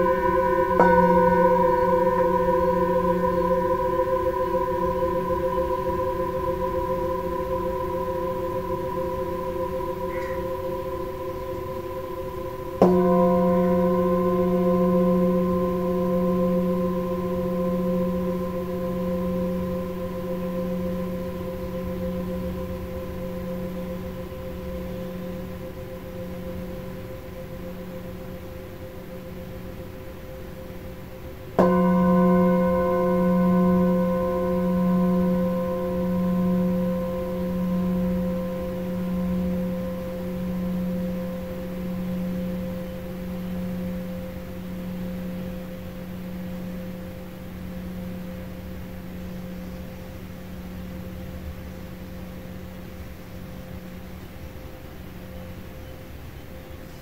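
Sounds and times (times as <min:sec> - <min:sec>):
singing bowl ringing: 0:00.0 - 0:56.1.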